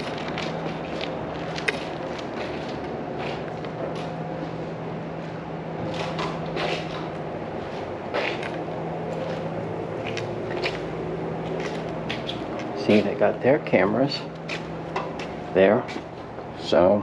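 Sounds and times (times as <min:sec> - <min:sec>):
footsteps on concrete: 0:00.0 - 0:04.6, 0:05.2 - 0:13.2, 0:14.4 - 0:16.3
steady low hum: 0:00.0 - 0:17.0
knocks and scuffs: 0:07.7 - 0:13.2.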